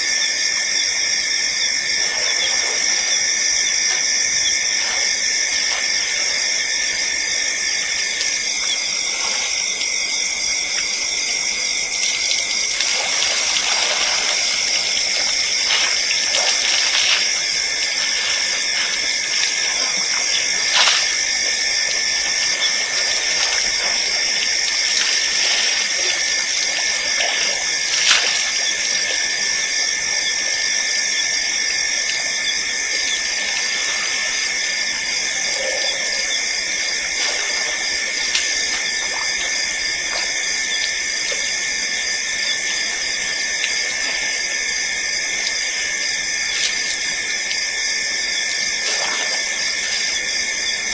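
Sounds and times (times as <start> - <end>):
shrill insect chorus: 0.0 - 50.9
elephants splashing water: 1.9 - 7.0, 11.4 - 30.4, 32.2 - 44.8, 48.7 - 50.4.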